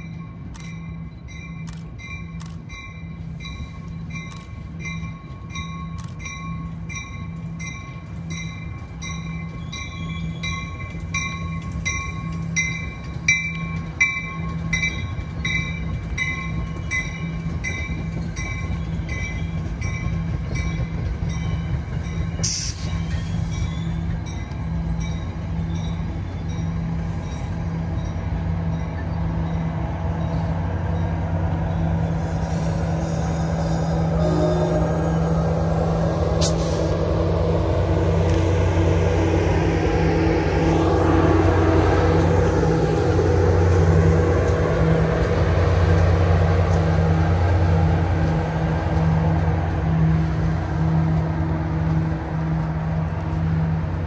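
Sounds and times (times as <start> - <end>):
train bell ringing: 0.0 - 35.7
low train hum: 0.0 - 54.0.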